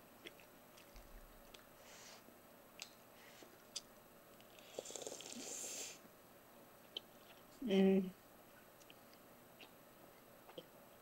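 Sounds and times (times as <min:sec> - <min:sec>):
person eating: 0:02.8 - 0:06.0.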